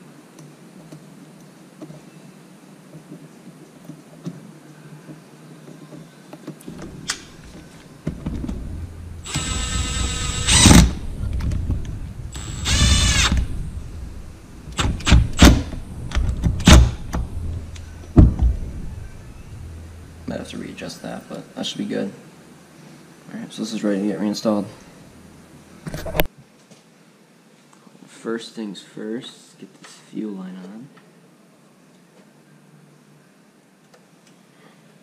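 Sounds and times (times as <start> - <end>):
power tool motor whine: 8.3 - 15.8
sharp metallic knocks and clicks: 14.7 - 18.6.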